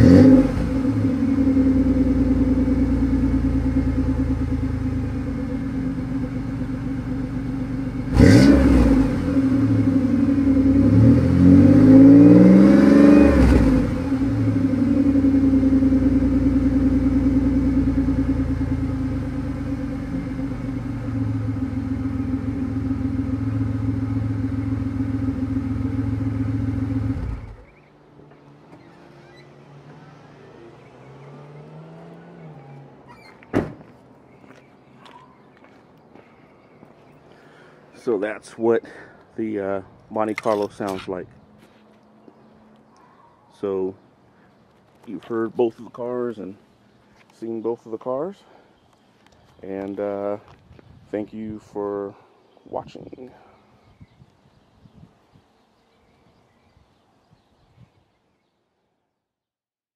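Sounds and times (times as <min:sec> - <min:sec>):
car engine idling and revving: 0:00.0 - 0:33.3.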